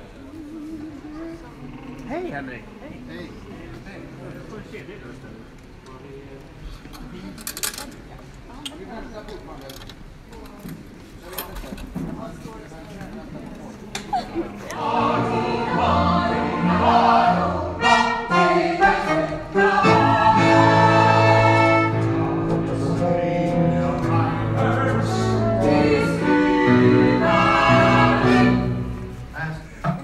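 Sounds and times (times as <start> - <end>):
choir singing: 14.5 - 29.1
instrumental accompaniment: 14.7 - 29.3.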